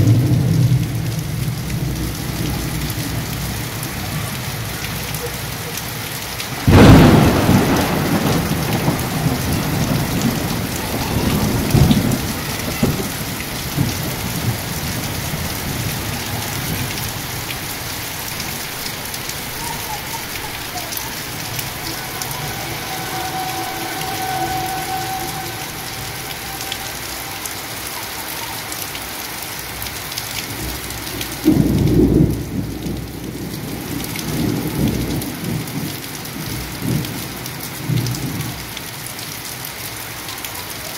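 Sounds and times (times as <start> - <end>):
heavy rain falling: 0.0 - 40.9
thunder: 6.6 - 28.0, 30.5 - 38.6.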